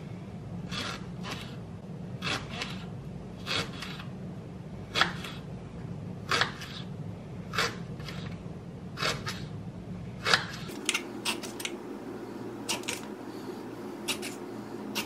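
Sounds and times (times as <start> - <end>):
low background hum: 0.0 - 15.0
knife chopping on cutting board: 4.9 - 5.4, 6.2 - 6.9.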